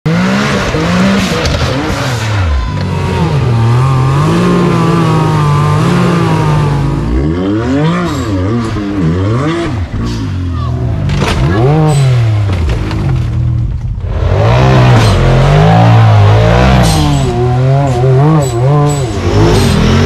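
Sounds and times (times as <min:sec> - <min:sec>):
utility vehicle engine revving: 0:00.1 - 0:20.0.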